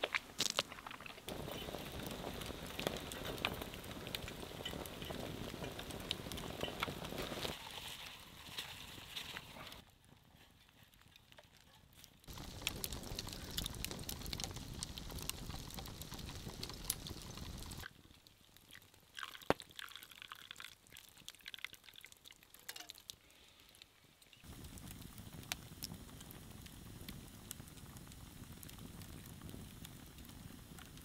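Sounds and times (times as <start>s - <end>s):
campfire crackling: 0.0s - 31.0s
hot water pouring into a cup: 1.3s - 7.7s, 12.3s - 17.8s, 18.7s - 23.1s.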